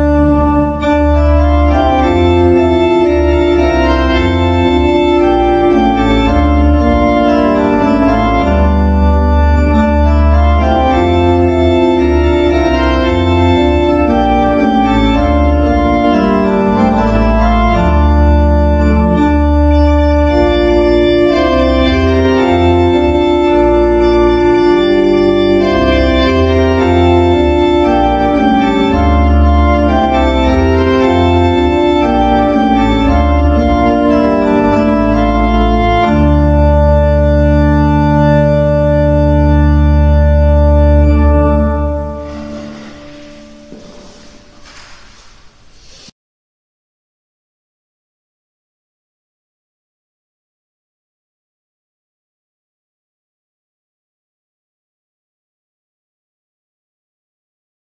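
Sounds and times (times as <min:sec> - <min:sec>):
organ playing slow chords: 0:00.0 - 0:46.0.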